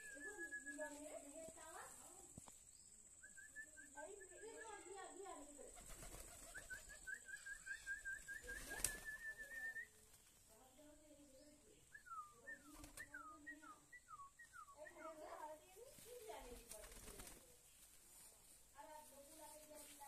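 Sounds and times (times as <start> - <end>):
high chirps: 6.1 - 10.0.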